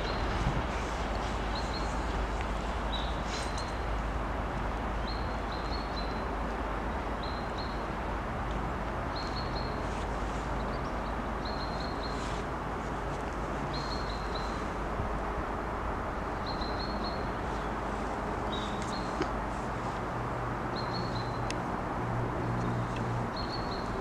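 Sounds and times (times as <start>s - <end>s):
distant diesel locomotive rumble: 0.0s - 5.0s.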